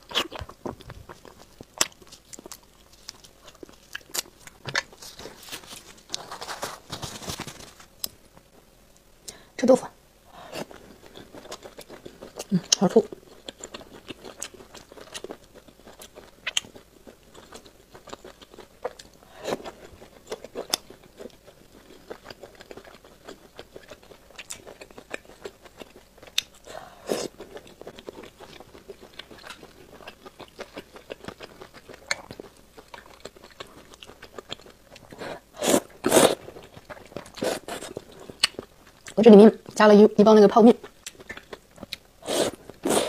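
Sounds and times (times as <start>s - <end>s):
wet chewing: 0.0s - 6.8s, 10.5s - 39.8s, 40.8s - 43.0s
slurping noodles: 35.2s - 36.4s, 37.4s - 38.0s, 42.2s - 43.0s.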